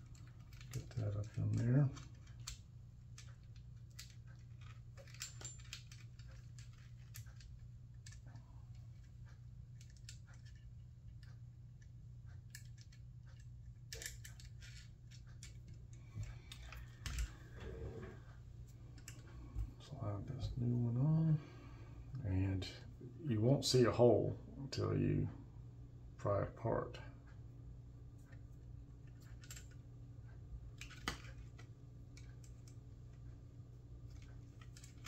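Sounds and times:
plastic and metal parts clicking: 0.0 - 11.4, 12.5 - 17.7, 29.1 - 29.8, 30.8 - 32.8, 34.1 - 35.0
steady low hum: 0.0 - 35.0.

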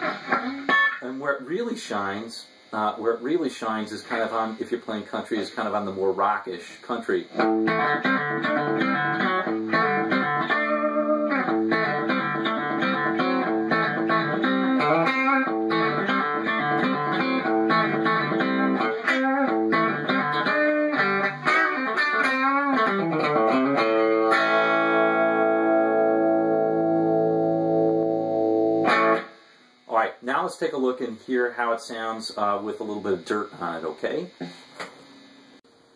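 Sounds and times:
clean electric guitar licks: 7.3 - 24.9.

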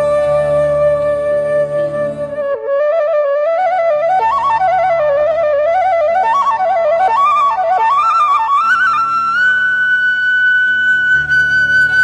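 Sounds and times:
steady low drone: 0.0 - 2.6
bamboo flute melody: 0.0 - 12.0.

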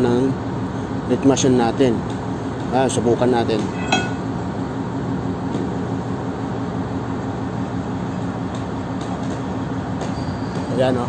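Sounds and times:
ship machinery droning: 2.3 - 8.2.

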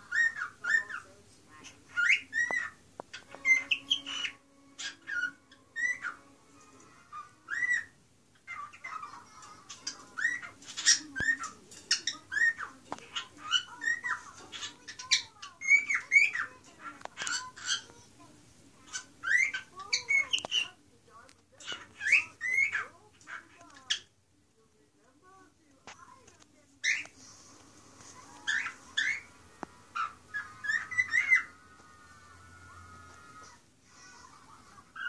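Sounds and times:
cockatiel chirping and whistling: 0.0 - 1.0, 1.9 - 6.2, 7.1 - 9.1, 9.7 - 16.5, 18.9 - 20.7, 21.6 - 22.9, 28.4 - 29.3, 30.0 - 31.5.

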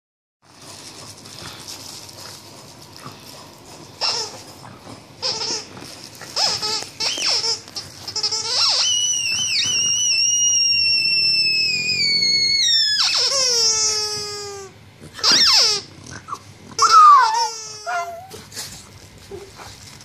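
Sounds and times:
dog toy squeaking: 4.0 - 4.4, 5.2 - 18.4.

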